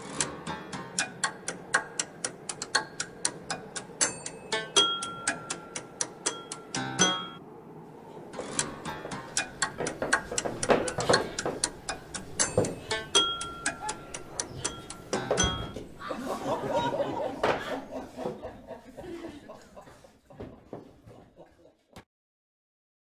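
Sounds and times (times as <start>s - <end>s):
short ringing tones: 4.0s - 7.4s, 12.4s - 15.9s.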